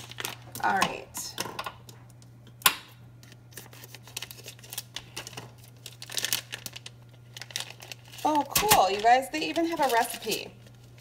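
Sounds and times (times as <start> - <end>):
plastic and foil crinkling: 0.0 - 0.8, 3.2 - 11.0.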